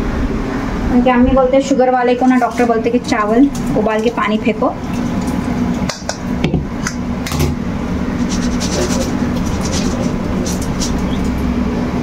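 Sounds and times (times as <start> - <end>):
steady low hum: 0.0 - 12.0
water draining: 2.0 - 11.6
pot scraping against metal strainer: 8.1 - 11.4.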